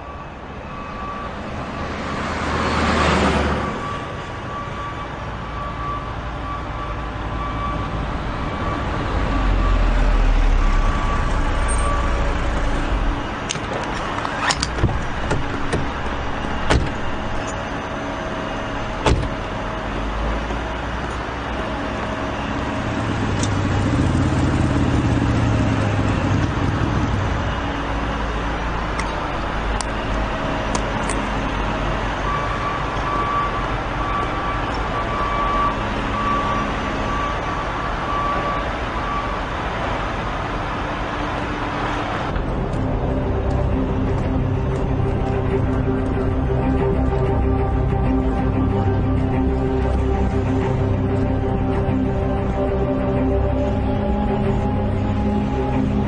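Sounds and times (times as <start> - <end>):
vehicle passing by: 0.0 - 5.0, 7.4 - 38.1
car engine running: 10.6 - 21.4.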